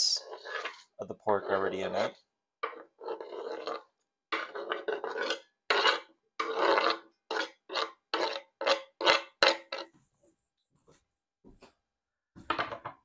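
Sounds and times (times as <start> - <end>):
scraping on wooden cutting board: 0.2 - 1.9, 2.6 - 10.0.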